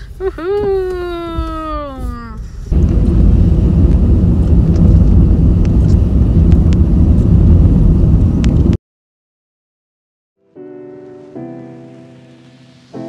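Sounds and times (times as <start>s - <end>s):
road and engine noise: 0.0s - 8.8s
wind buffeting microphone: 0.1s - 8.8s.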